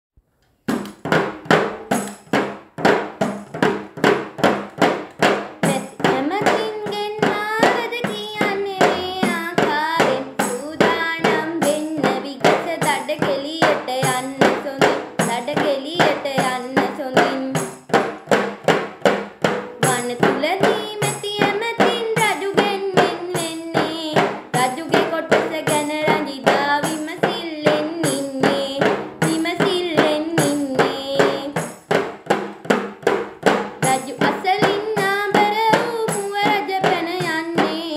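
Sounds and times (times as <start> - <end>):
girl singing: 5.3 - 18.0, 19.8 - 31.8, 33.5 - 37.9.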